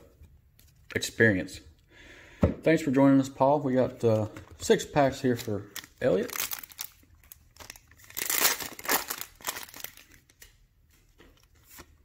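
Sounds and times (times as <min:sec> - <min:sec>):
rustling of wrapper and cards: 0:04.0 - 0:12.0
wrapper crinkling as torn open: 0:05.3 - 0:10.5.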